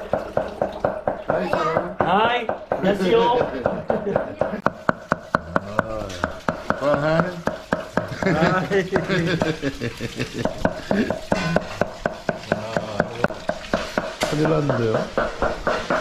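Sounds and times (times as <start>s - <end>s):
cleaver chopping on wooden block: 3.6s - 8.2s, 10.4s - 16.0s.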